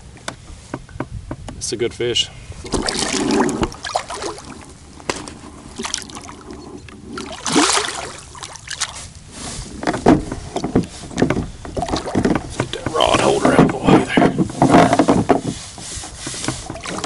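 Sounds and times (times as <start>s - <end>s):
fish thrashing and splashing: 2.6s - 9.8s, 10.4s - 13.6s, 16.6s - 17.0s.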